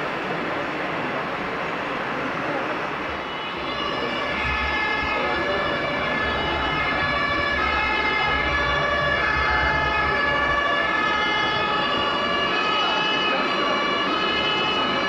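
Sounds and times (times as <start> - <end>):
toy ambulance siren: 3.4 - 15.0.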